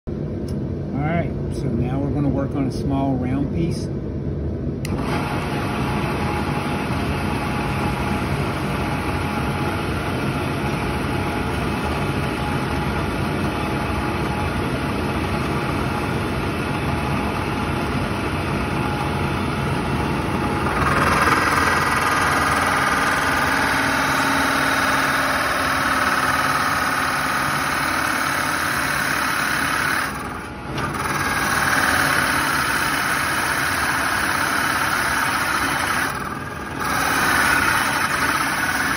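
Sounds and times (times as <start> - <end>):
drill press boring into wood: 4.9 - 9.9, 20.2 - 38.9.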